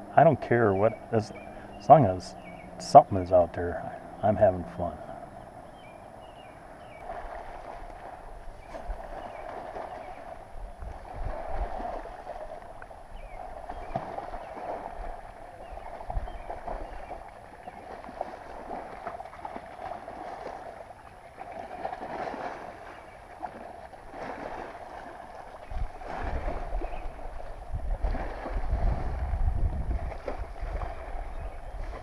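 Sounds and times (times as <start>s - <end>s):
wind rumble on microphone: 5.1s - 20.7s, 23.4s - 32.0s
water washing against hull: 6.1s - 32.0s
kayak paddle strokes swishing: 6.8s - 32.0s.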